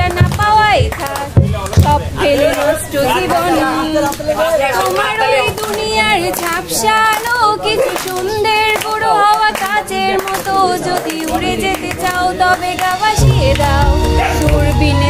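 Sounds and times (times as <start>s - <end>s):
woman singing solo: 10.8s - 15.0s.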